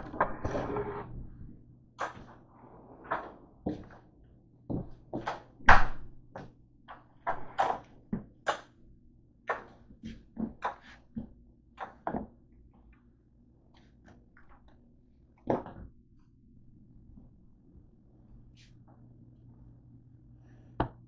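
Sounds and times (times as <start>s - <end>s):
faint steady hum: 12.4s - 21.0s.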